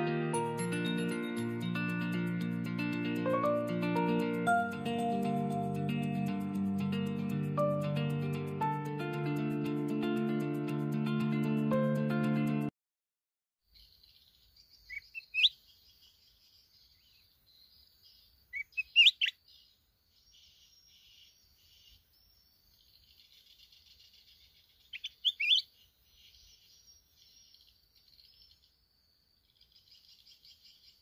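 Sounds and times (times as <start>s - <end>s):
bird singing sweeping phrases: 13.8s - 28.8s
faint insect trill: 13.8s - 31.0s.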